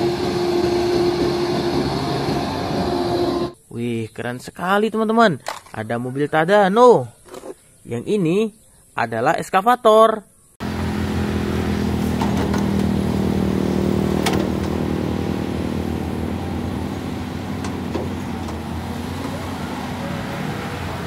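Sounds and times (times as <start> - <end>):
excavator diesel engine running: 0.0 - 3.6, 10.6 - 21.0.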